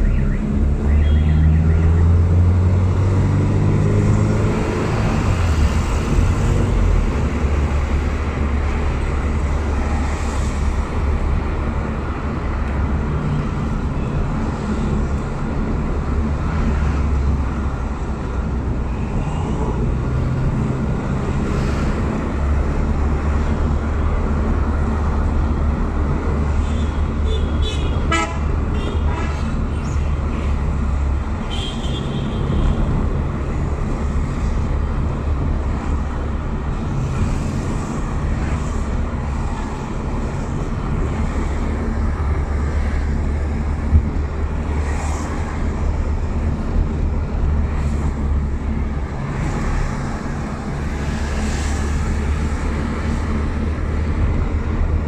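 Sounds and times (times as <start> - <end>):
vehicle horn toot: 27.3 - 29.1.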